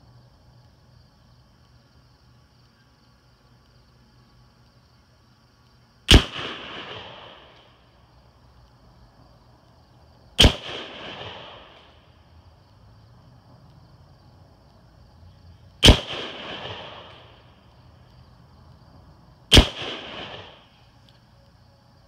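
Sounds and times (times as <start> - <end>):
rifle shots with echo: 6.1 - 7.8, 10.4 - 12.1, 15.8 - 17.6, 19.5 - 20.7.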